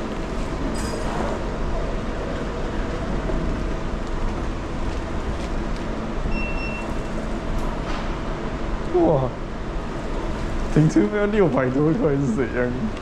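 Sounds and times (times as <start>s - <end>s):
car park rumble and hiss: 0.0s - 13.0s
high electronic beep: 6.3s - 6.9s.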